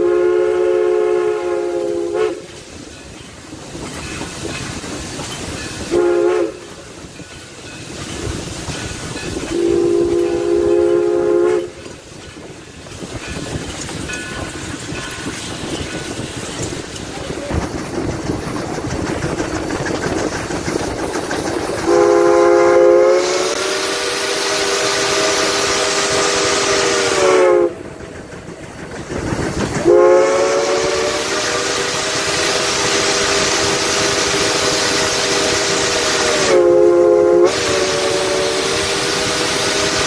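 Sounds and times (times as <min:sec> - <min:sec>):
steam locomotive chime whistle: 0:00.0 - 0:03.2, 0:05.5 - 0:12.0, 0:21.8 - 0:27.9, 0:29.8 - 0:40.0
train rolling: 0:00.0 - 0:40.0.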